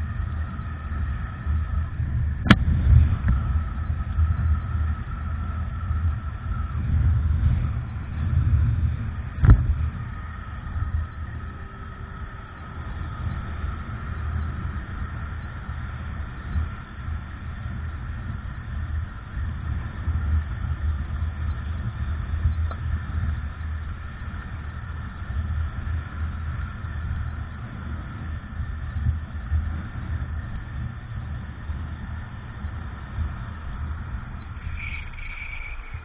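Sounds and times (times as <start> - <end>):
road noise: 0.0 - 36.0
wind buffeting microphone: 0.0 - 36.0
car traffic passing: 31.2 - 36.0.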